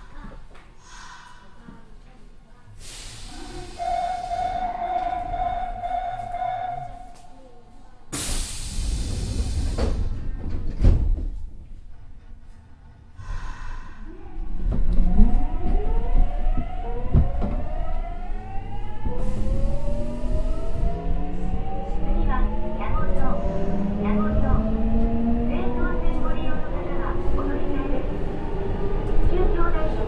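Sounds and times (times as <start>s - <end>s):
train doors hissing and closing: 2.8s - 4.9s, 8.1s - 11.3s.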